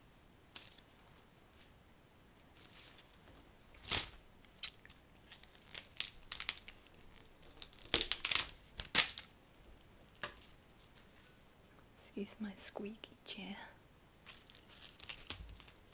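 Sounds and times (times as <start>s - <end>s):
leaves rustling: 2.4s - 11.6s, 14.2s - 15.9s.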